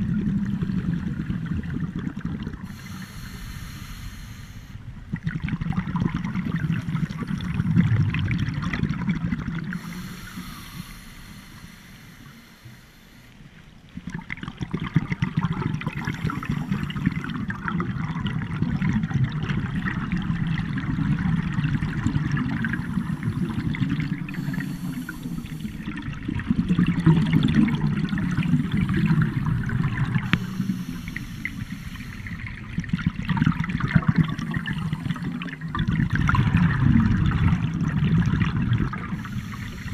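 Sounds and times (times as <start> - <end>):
air bubbling underwater: 14.0 - 39.9.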